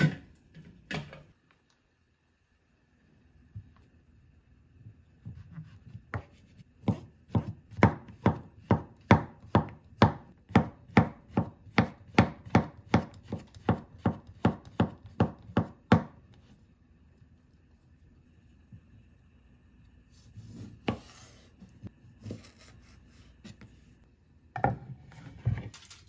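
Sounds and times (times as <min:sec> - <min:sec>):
knife chopping on wooden board: 0:05.2 - 0:16.2.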